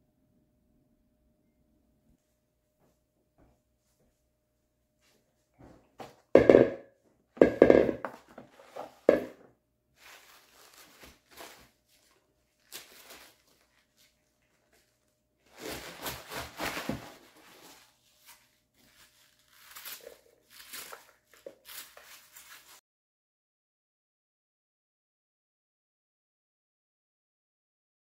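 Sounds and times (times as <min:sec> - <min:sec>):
knocks and thuds: 0:06.4 - 0:06.8, 0:07.4 - 0:08.2
rustling and scraping: 0:07.4 - 0:22.8.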